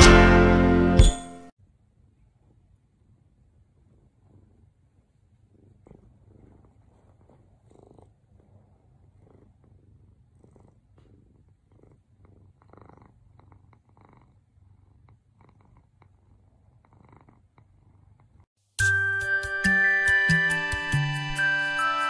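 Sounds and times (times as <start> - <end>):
cat purring: 2.0 - 18.5
soft fabric rustles: 4.3 - 8.6.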